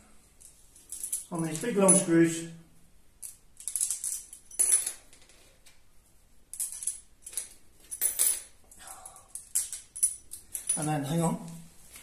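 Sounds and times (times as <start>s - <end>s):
metal washers and screws clinking: 0.4s - 2.2s, 3.2s - 5.8s, 6.5s - 11.2s.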